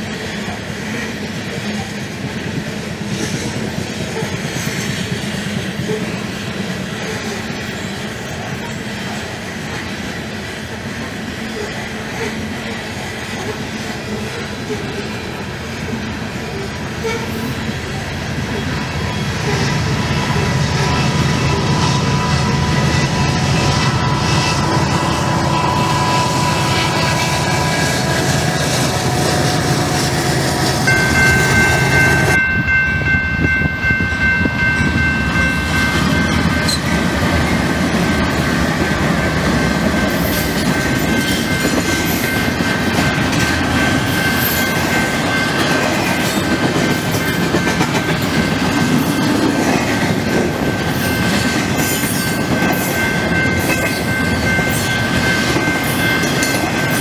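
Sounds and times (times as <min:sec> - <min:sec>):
diesel locomotives passing: 0:00.0 - 0:57.0
distant coal train rumbling: 0:00.0 - 0:57.0
high-pitched crossing tones: 0:30.6 - 0:37.7.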